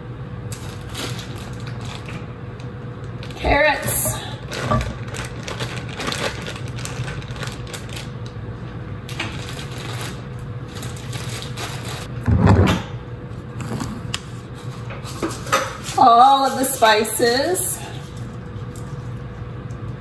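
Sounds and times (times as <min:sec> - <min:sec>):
steady low hum: 0:00.0 - 0:20.0
plastic bag crinkling: 0:00.5 - 0:08.4, 0:09.1 - 0:12.1.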